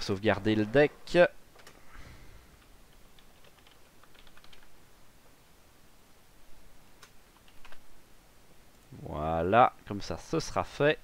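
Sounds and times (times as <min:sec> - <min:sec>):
typing on computer keyboard: 0:03.2 - 0:04.7, 0:07.4 - 0:07.8.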